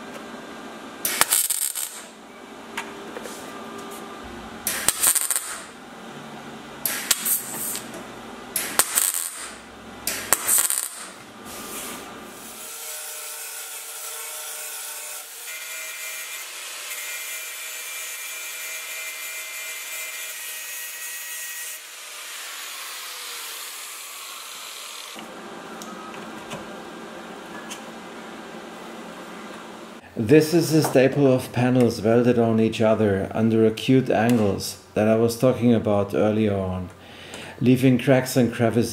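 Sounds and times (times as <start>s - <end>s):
welder weld bursts: 1.0s - 2.2s, 4.6s - 5.8s, 6.8s - 7.9s, 8.5s - 12.8s.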